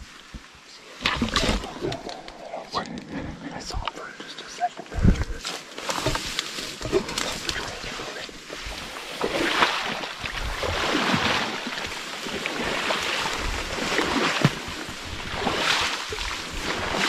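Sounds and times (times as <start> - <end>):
twigs snapping: 5.4 - 7.7.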